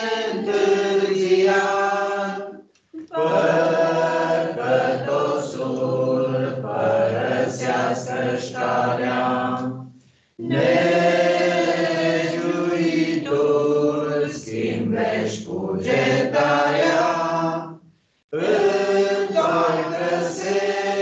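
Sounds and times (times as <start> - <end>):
choir singing a hymn: 0.0 - 21.0.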